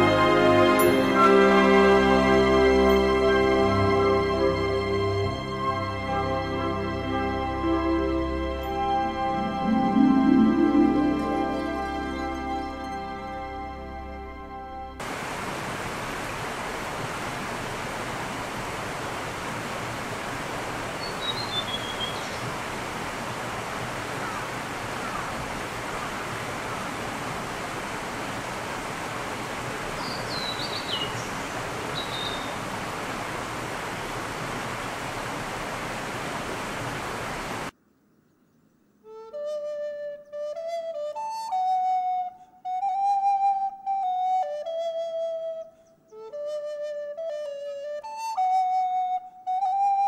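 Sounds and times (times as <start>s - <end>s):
babbling stream: 0.0s - 37.7s.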